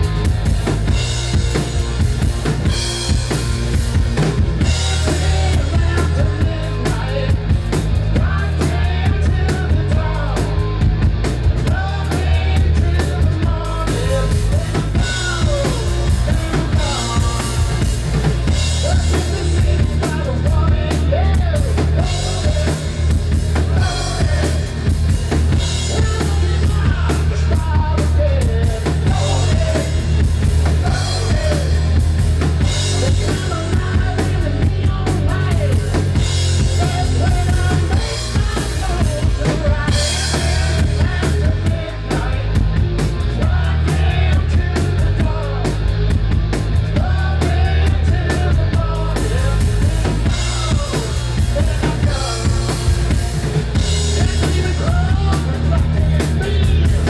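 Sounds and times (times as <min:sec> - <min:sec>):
drum kit: 0:00.0 - 0:57.0
electric guitars and bass: 0:00.0 - 0:57.0
person singing: 0:04.6 - 0:45.9, 0:46.8 - 0:57.0.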